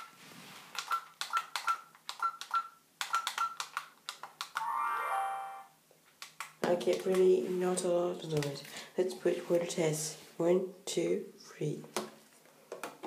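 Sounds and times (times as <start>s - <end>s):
longer electronic tone: 4.6s - 5.7s.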